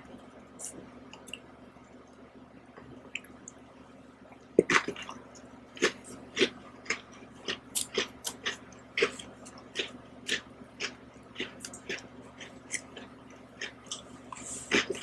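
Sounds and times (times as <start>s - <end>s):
cookie crunching while chewed: 4.6s - 15.0s.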